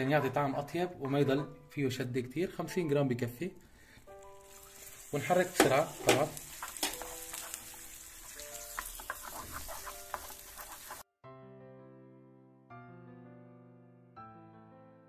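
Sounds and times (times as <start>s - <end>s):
soft piano music: 0.0s - 15.0s
butter sizzling in a frying pan: 4.0s - 11.1s
wooden spatula scraping a pan: 4.7s - 11.1s.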